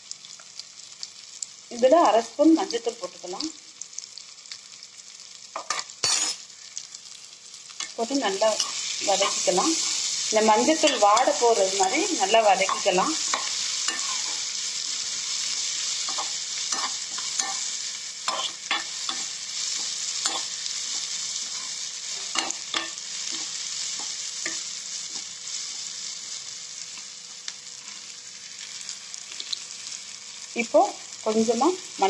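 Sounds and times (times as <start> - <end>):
vegetables sizzling in hot oil: 0.0 - 32.0
spatula scraping a pan: 12.6 - 25.8.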